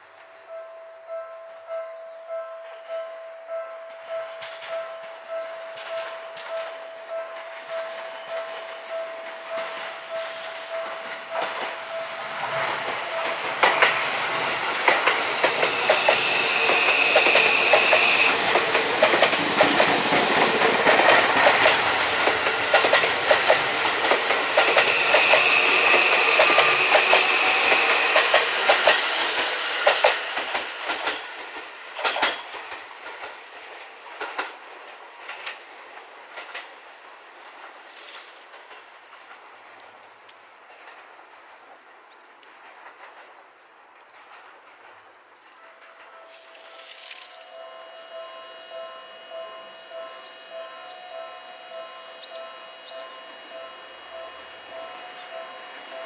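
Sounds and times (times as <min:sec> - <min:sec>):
level-crossing warning tone: 0:00.2 - 0:30.5, 0:45.6 - 0:56.0
train wheels clacking over rail joints: 0:03.9 - 0:39.8
high tone: 0:46.0 - 0:56.0.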